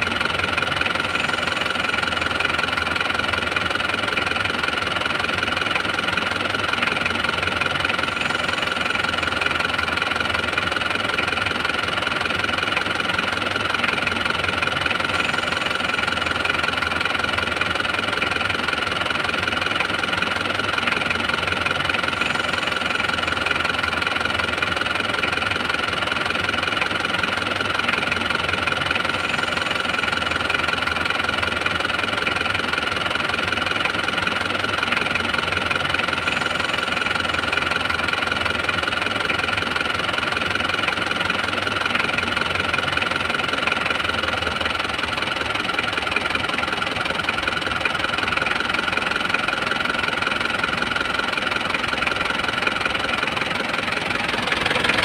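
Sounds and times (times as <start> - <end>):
car engine idling: 0.0 - 55.0
steady high whine: 35.3 - 39.8.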